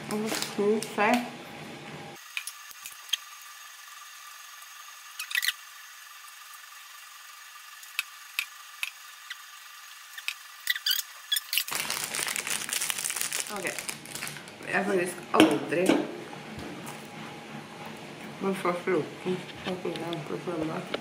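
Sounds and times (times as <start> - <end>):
plastic wrapper crinkling: 10.7 - 14.6.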